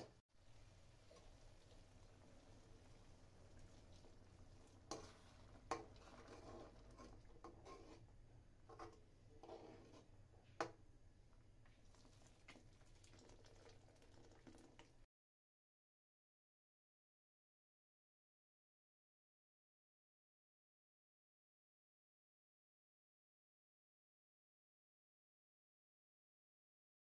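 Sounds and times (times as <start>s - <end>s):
spatula scraping gravy in pan: 0.7s - 10.8s.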